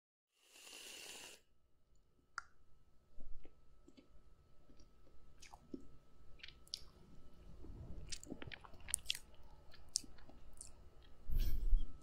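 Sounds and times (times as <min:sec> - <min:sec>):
aerosol can hissing: 0:00.4 - 0:01.4.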